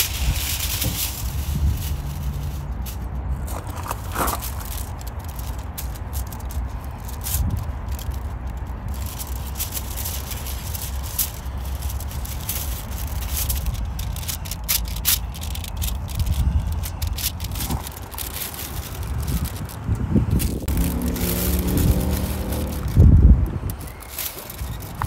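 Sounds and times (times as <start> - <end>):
aluminium foil crinkling: 0.0 - 25.0
low rumble: 15.6 - 23.8.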